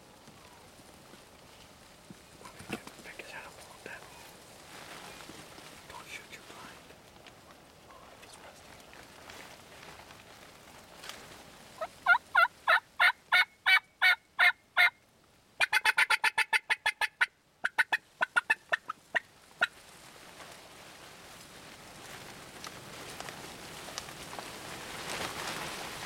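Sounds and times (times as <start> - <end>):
turkey yelping: 11.8 - 14.9, 15.6 - 19.7.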